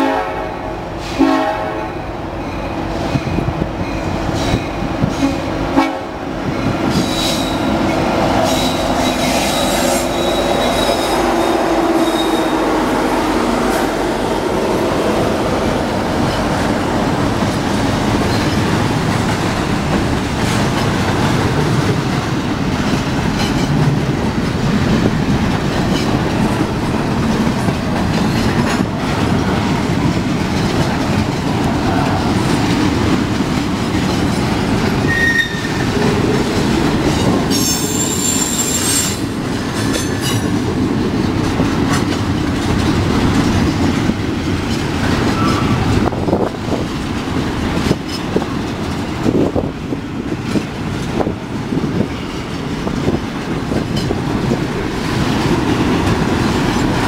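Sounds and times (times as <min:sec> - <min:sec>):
freight train rolling past: 0:00.0 - 0:57.0
high-pitched wheel squeal: 0:07.0 - 0:07.7, 0:08.4 - 0:12.7, 0:35.1 - 0:35.8, 0:37.5 - 0:39.2, 0:45.3 - 0:45.8.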